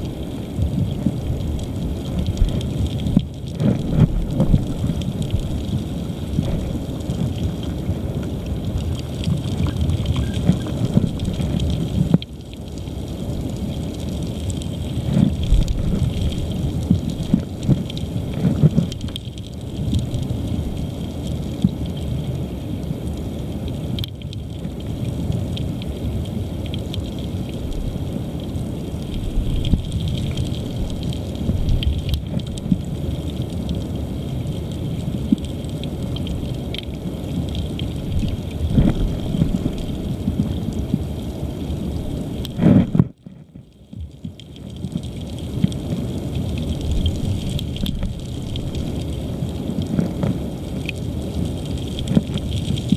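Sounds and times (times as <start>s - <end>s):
underwater rush of water: 0.0s - 52.9s
small ticks: 6.4s - 12.9s, 13.9s - 20.3s, 49.8s - 51.0s.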